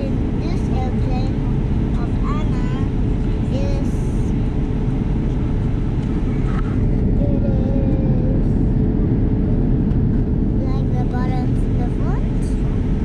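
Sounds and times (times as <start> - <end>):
airliner cabin engine rumble: 0.0 - 13.0.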